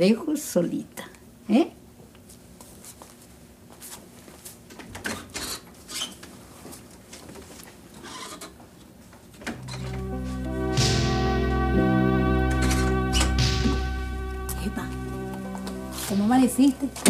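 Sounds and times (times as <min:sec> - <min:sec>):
music: 0:09.6 - 0:17.0.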